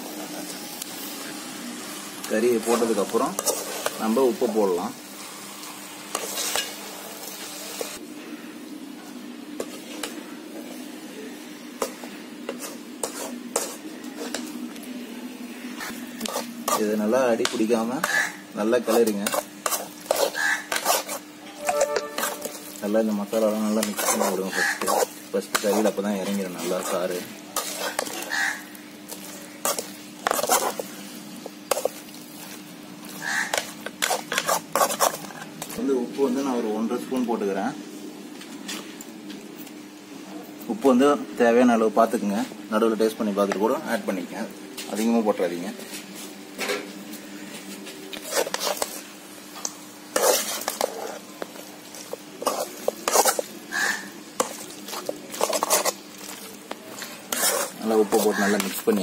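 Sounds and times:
faint frying sizzle: 0.0s - 59.0s
metal spatula scraping a pan: 2.6s - 4.0s, 6.1s - 6.8s, 12.5s - 14.4s, 15.8s - 16.9s, 18.9s - 22.8s, 23.7s - 28.4s, 29.2s - 30.9s, 33.2s - 35.5s, 48.2s - 49.0s, 50.1s - 56.0s, 56.9s - 59.0s.

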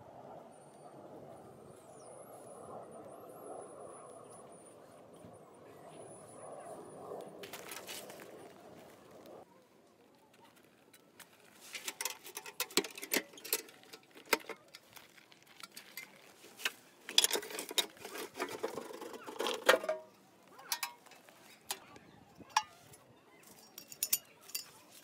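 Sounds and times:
light rustle: 10.0s - 19.7s.

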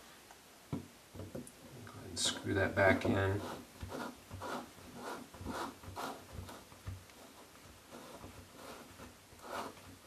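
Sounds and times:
drain rubbing and scraping in threads: 2.2s - 10.0s.

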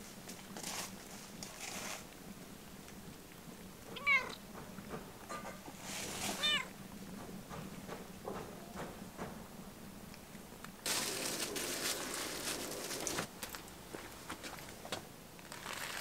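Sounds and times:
cats meowing: 3.9s - 4.4s, 6.3s - 6.8s.

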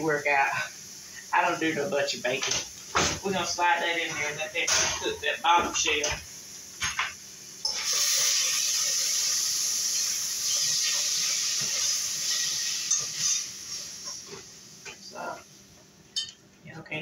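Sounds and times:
steam hissing from a pot: 0.0s - 15.7s.

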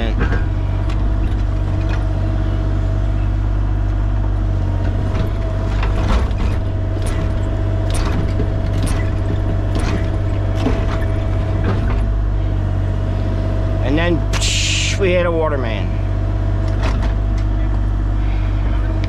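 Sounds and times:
excavator engine whining: 0.0s - 19.0s
sharp digging knocks: 7.0s - 12.0s.

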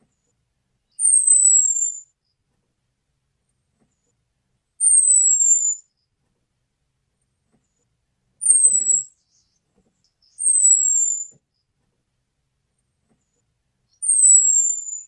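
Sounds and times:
high thin bird call: 1.0s - 2.1s, 4.8s - 5.8s, 8.4s - 9.5s, 10.3s - 11.3s, 14.0s - 15.0s.

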